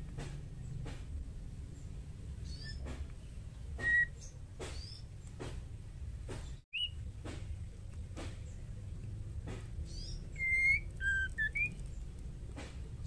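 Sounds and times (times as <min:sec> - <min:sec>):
low background rumble: 0:00.0 - 0:13.0
bird whistling: 0:03.8 - 0:05.0, 0:06.7 - 0:07.0, 0:09.9 - 0:11.8.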